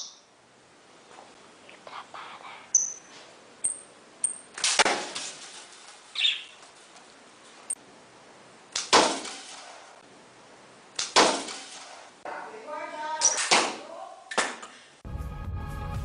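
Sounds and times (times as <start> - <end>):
arrow impact: 4.6 - 5.7, 8.7 - 10.0, 11.0 - 12.1, 13.2 - 13.8.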